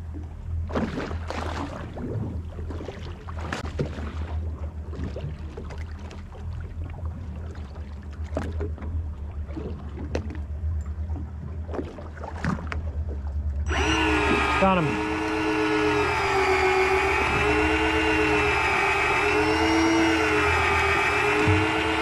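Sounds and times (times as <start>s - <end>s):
water slapping against hull: 0.0s - 22.0s
outboard motors idling: 4.3s - 22.0s
electric reel motor whine: 13.7s - 22.0s.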